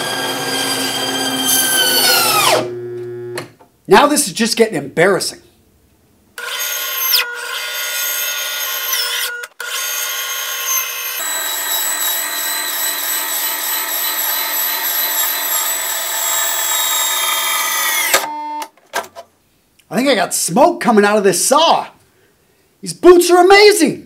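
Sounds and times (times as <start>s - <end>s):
band saw whine cutting: 0.0s - 3.3s, 6.4s - 18.3s.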